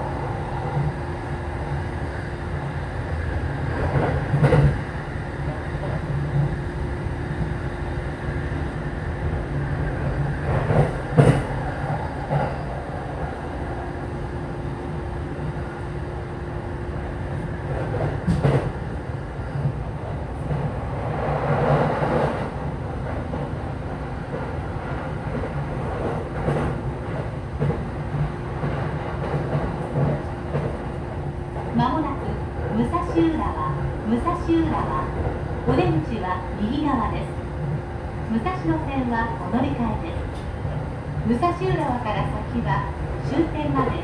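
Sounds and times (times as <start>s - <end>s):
train wheels rumbling on rail: 0.0s - 44.0s.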